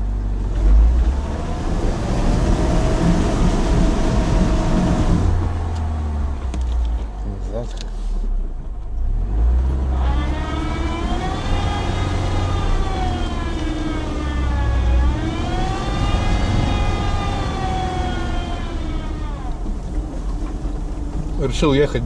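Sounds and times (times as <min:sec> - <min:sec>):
car engine low drone: 0:00.0 - 0:22.0
gear whine rising in pitch: 0:09.7 - 0:19.6.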